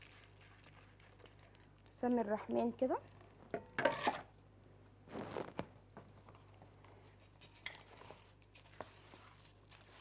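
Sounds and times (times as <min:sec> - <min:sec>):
rice stirred in a pot: 0:07.0 - 0:10.0.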